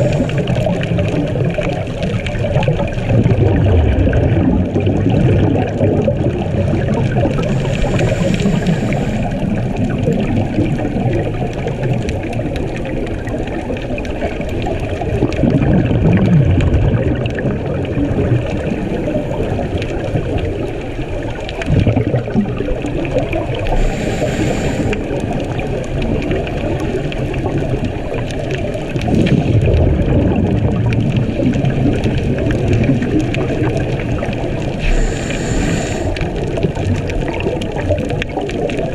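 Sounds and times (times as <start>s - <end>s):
bubbly exhaled air rumbles: 0.0s - 38.9s
muffled underwater noise: 0.0s - 38.9s
regulator inhalation hiss: 7.4s - 9.4s, 23.7s - 25.1s, 34.8s - 36.3s.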